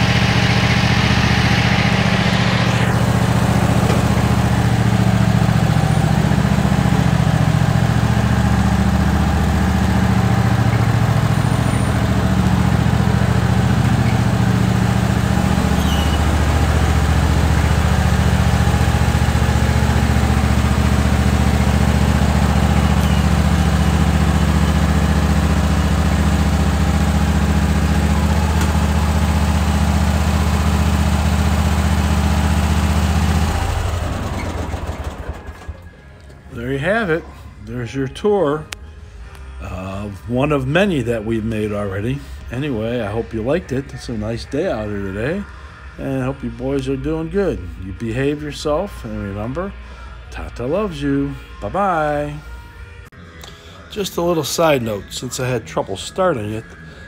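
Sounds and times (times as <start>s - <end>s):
small tractor engine running: 0.0s - 38.7s.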